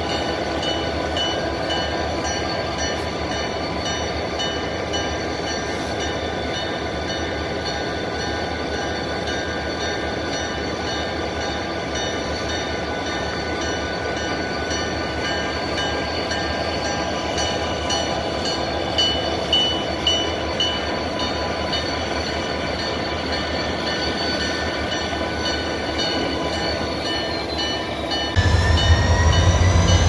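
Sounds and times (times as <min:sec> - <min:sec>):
diesel locomotive engines running: 0:00.0 - 0:30.0
high ringing tones: 0:07.1 - 0:30.0.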